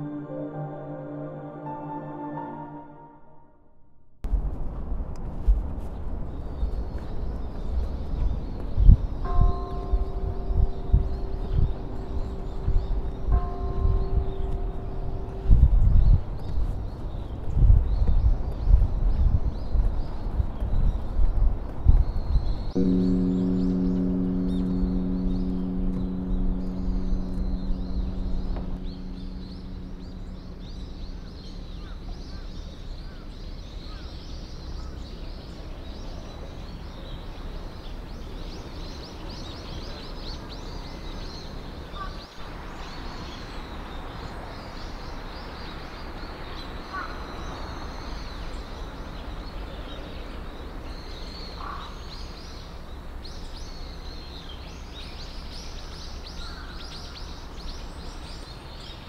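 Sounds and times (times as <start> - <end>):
low rumble: 4.2 - 33.9
small birds chirping: 5.8 - 59.0.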